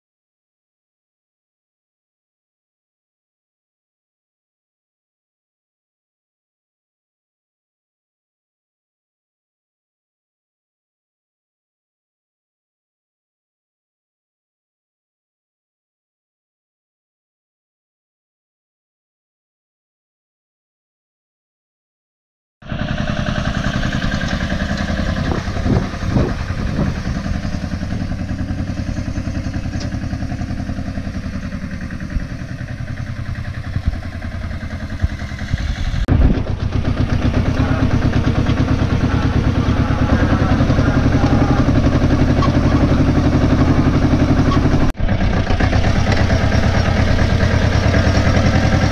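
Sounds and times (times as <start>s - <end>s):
tractor engine running: 22.6s - 48.9s.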